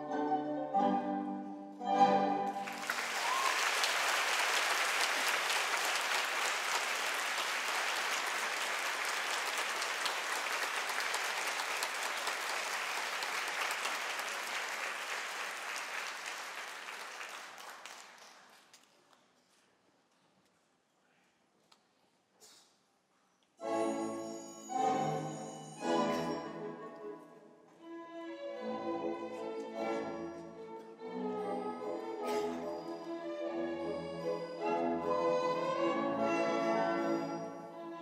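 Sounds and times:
orchestral ballet music: 0.0 - 14.9, 23.6 - 38.0
audience applause: 2.5 - 18.7.

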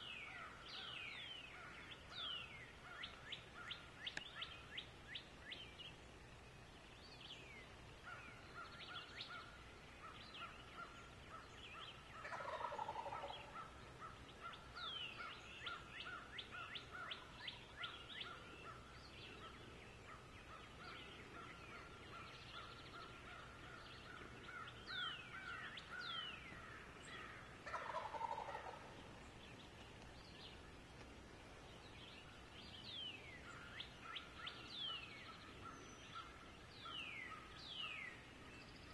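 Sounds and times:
small birds chirping: 0.0 - 38.9
turkeys gobbling: 12.2 - 13.8, 27.6 - 28.9.

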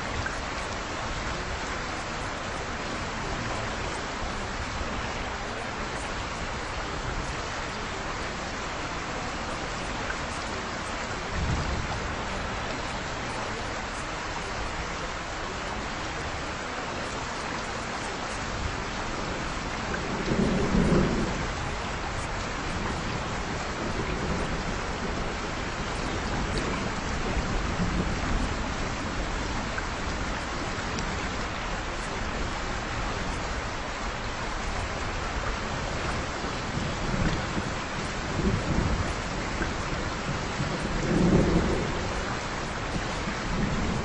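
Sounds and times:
steady rain falling: 0.0 - 44.0
thunder rumbling: 11.3 - 12.5, 19.9 - 32.4, 34.7 - 44.0.

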